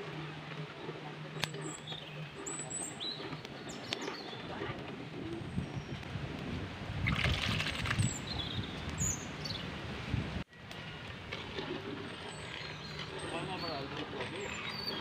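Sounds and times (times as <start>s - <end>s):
bird chirps: 12.1s - 15.0s.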